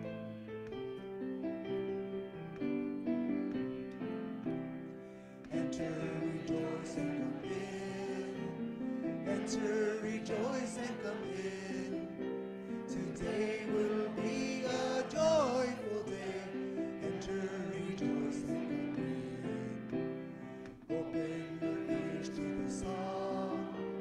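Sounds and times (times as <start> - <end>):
piano chords: 0.0 - 24.0
people singing a hymn: 5.3 - 24.0.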